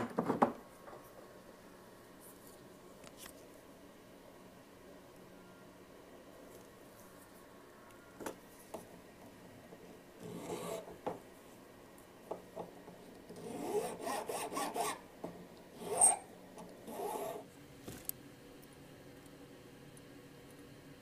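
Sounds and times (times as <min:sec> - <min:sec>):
needle file scraping metal: 0:10.2 - 0:10.9, 0:13.3 - 0:15.0, 0:15.8 - 0:17.4.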